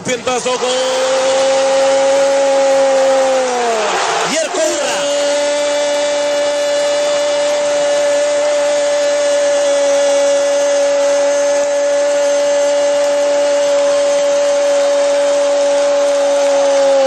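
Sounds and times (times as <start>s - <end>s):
commentator shouting goal: 0.0s - 8.4s.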